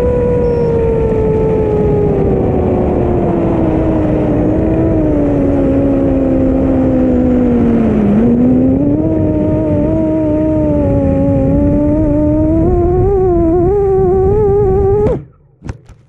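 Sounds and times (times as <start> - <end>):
quadcopter motors whining: 0.0 - 15.3.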